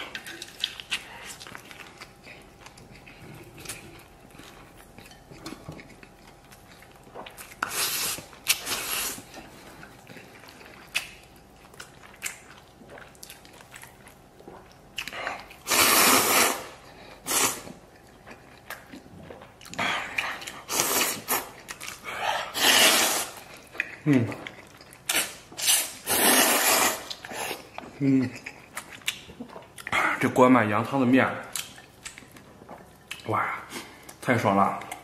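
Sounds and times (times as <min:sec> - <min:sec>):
person chewing: 0:00.0 - 0:30.2, 0:31.4 - 0:35.0
noodle slurping: 0:15.6 - 0:17.8, 0:22.2 - 0:23.5, 0:25.1 - 0:27.7.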